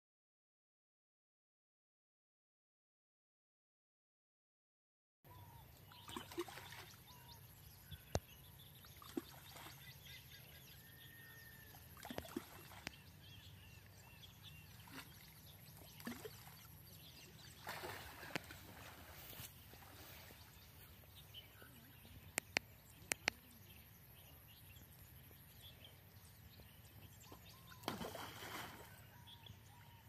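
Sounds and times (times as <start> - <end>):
birds chirping: 5.3 - 30.0
water splashing: 6.0 - 7.1, 12.0 - 13.4, 14.7 - 20.6, 27.8 - 29.0.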